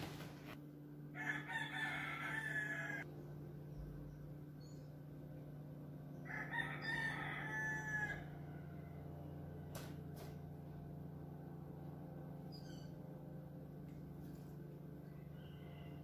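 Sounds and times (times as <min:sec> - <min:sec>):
steady low hum: 0:00.0 - 0:16.0
rooster crowing: 0:01.1 - 0:03.1, 0:06.2 - 0:08.8, 0:15.1 - 0:16.0.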